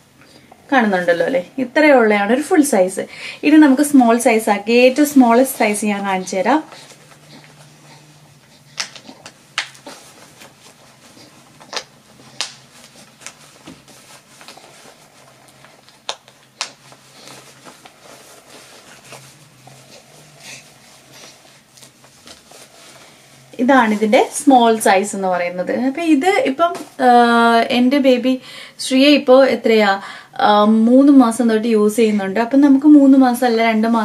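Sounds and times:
faint steady hum: 0:00.0 - 0:34.0
soft fabric handling: 0:03.4 - 0:25.3.

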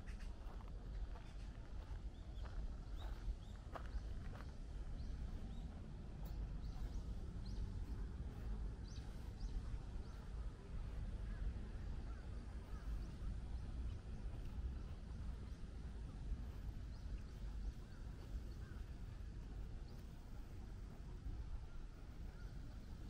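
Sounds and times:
low steady rumble: 0:00.0 - 0:23.0
small birds chirping: 0:00.0 - 0:23.0.

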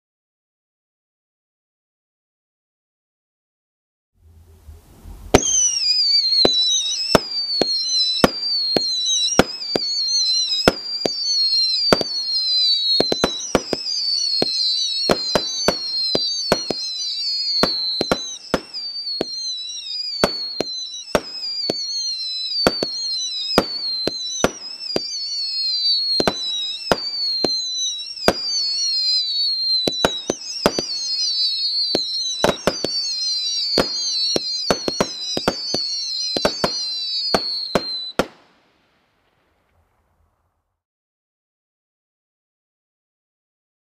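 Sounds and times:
fireworks whistles falling in pitch: 0:04.5 - 0:39.8
fireworks cracks and bangs: 0:05.3 - 0:39.8.

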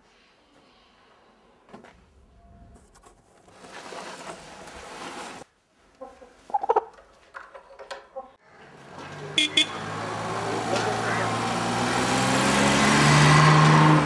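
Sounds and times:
rooster clucking: 0:06.0 - 0:07.0.

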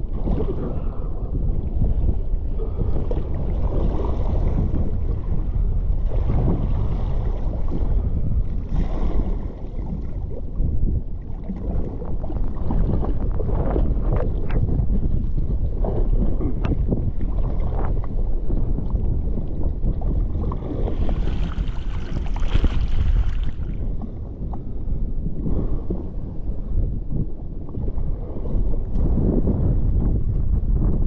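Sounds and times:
wind noise on microphone: 0:00.0 - 0:31.0
water spray splashing on hull: 0:20.6 - 0:23.8.

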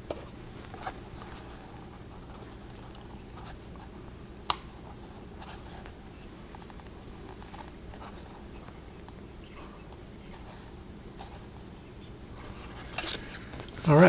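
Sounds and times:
faint handling sounds: 0:00.0 - 0:04.0, 0:04.7 - 0:11.7, 0:12.3 - 0:14.0.

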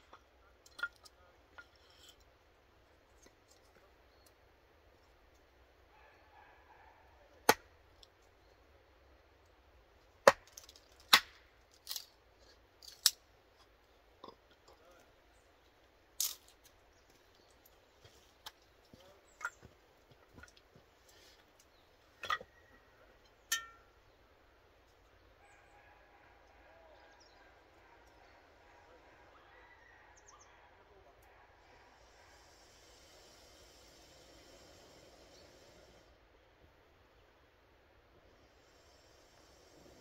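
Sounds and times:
hatchet splitting wood: 0:10.2 - 0:11.4.

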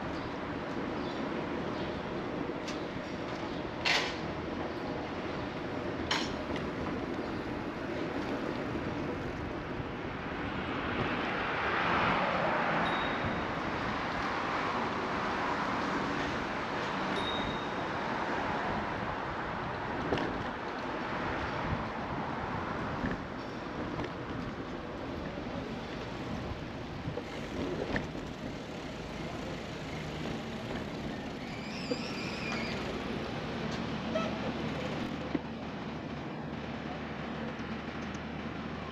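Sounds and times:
traffic tyres and wind hiss: 0:00.0 - 0:38.9
bicycle rolling noise: 0:19.0 - 0:33.8
faint high squeal: 0:31.1 - 0:32.9.

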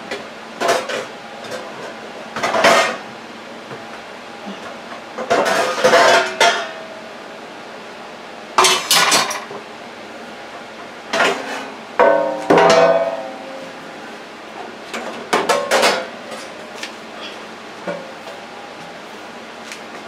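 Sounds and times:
metal pans clanging: 0:05.2 - 0:06.8.

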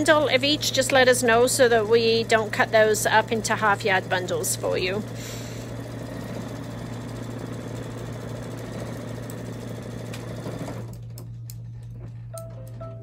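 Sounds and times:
embroidery machine stitching: 0:00.0 - 0:11.1
steady low hum: 0:10.8 - 0:13.0.

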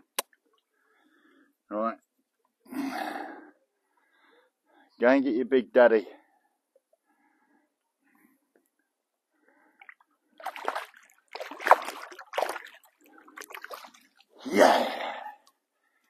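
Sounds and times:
fish splashing in water: 0:09.8 - 0:14.4.

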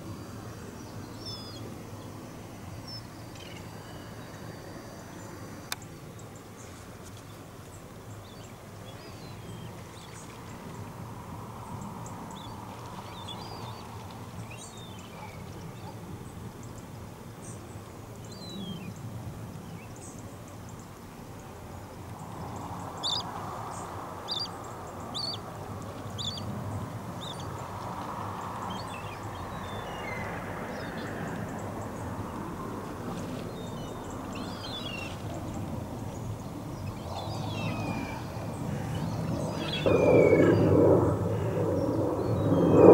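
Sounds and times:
low background rumble: 0:24.9 - 0:42.9
birds chirping and calling: 0:36.8 - 0:40.7.

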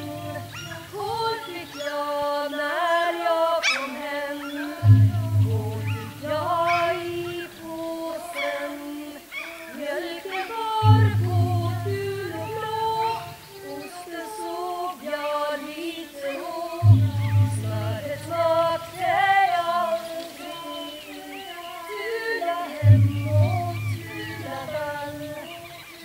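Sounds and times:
low drone note: 0:00.0 - 0:01.5, 0:04.8 - 0:07.7, 0:10.8 - 0:13.6, 0:16.8 - 0:19.6, 0:22.8 - 0:25.6
wordless female choral singing: 0:00.0 - 0:26.0.

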